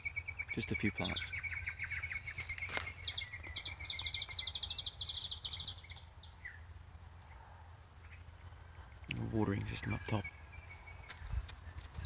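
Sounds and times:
bird trilling: 0:00.0 - 0:06.6
bird chirps: 0:00.0 - 0:06.7, 0:08.0 - 0:12.0.

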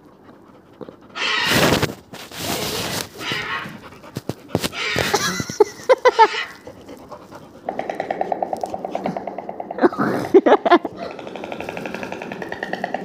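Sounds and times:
animal calls through speaker: 0:03.2 - 0:03.8, 0:04.7 - 0:05.4, 0:06.0 - 0:06.6.

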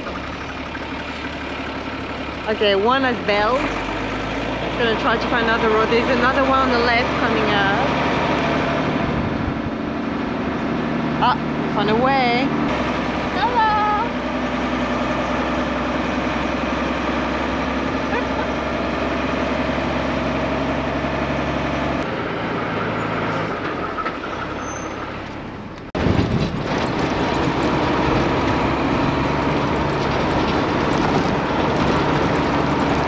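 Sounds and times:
road noise on dirt track: 0:00.0 - 0:33.0
truck engine drone: 0:00.0 - 0:33.0.

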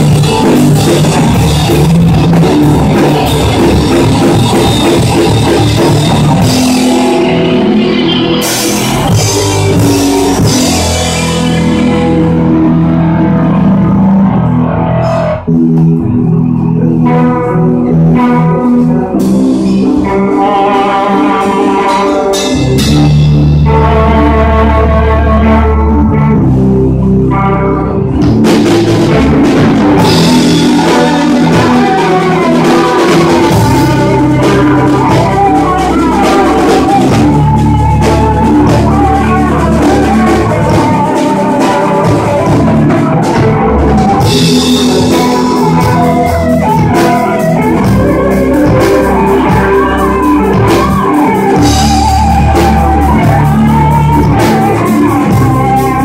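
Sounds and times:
drum kit: 0:00.0 - 0:56.0
electric guitars: 0:00.0 - 0:56.0.

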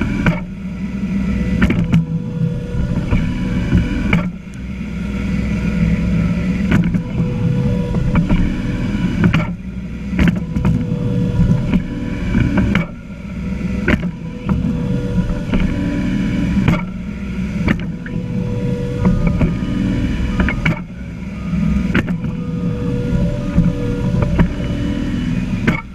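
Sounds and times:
tractor diesel engine running: 0:00.0 - 0:25.9
sharp knocks and rattles: 0:06.7 - 0:13.2, 0:13.8 - 0:18.2, 0:25.6 - 0:25.9.

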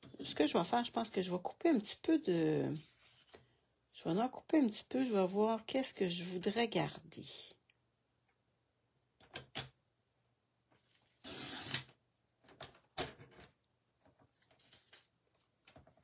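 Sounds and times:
paper rustling: 0:13.4 - 0:16.0.

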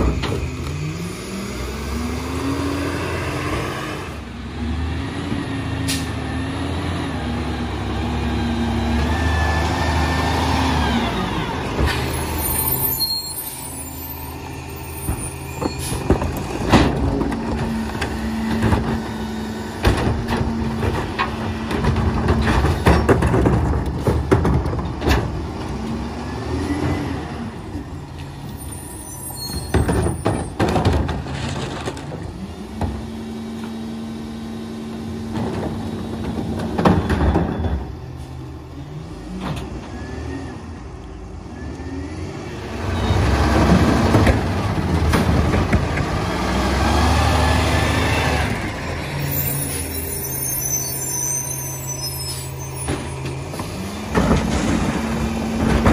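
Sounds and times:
clanks and bangs of trash loading: 0:15.0 - 0:25.9, 0:29.5 - 0:33.1, 0:35.2 - 0:38.1, 0:43.5 - 0:46.2, 0:52.8 - 0:55.9.

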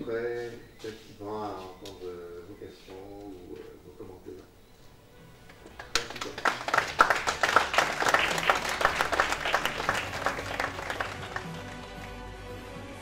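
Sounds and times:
faint music: 0:00.0 - 0:13.0
audience applause: 0:05.8 - 0:12.2.

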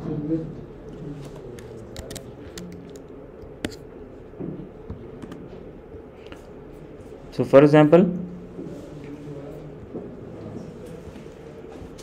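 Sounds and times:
low background hum: 0:00.0 - 0:12.0
computer keyboard keystrokes: 0:01.6 - 0:03.8.

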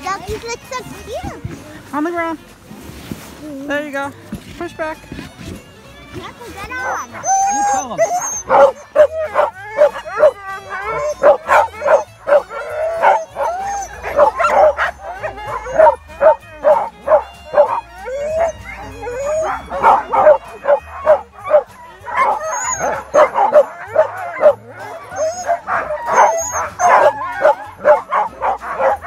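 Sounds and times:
sled dogs barking and howling: 0:06.5 - 0:29.0.

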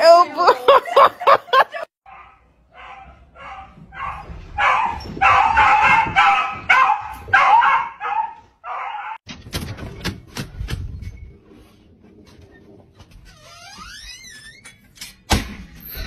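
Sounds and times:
dog barking: 0:02.1 - 0:09.2.

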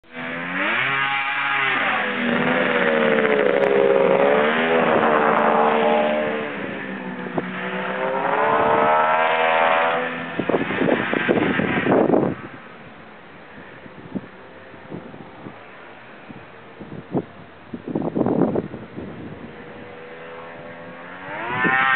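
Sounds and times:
snowmobile engine revving: 0:00.0 - 0:12.6, 0:19.4 - 0:21.9
rough crackling: 0:00.3 - 0:12.3.

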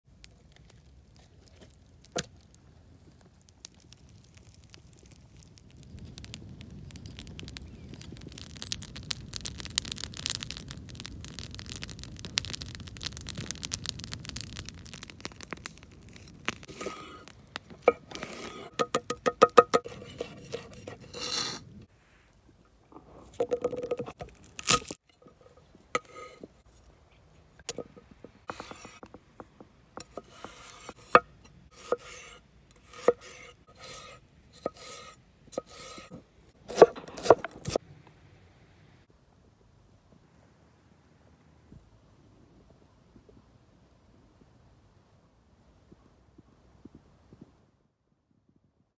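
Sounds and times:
campfire crackling: 0:00.1 - 0:38.2.

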